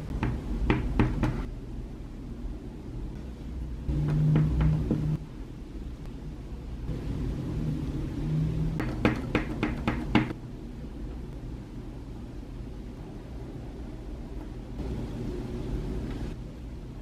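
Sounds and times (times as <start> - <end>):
rubber stamp knocking on ink pad: 8.8 - 10.3.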